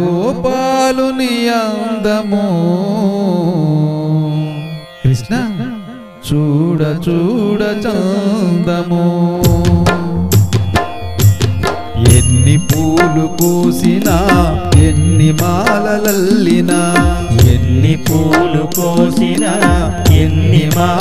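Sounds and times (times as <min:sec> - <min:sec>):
sharp drum strokes: 0:09.4 - 0:21.0
melodic lead with gliding notes: 0:09.5 - 0:21.0.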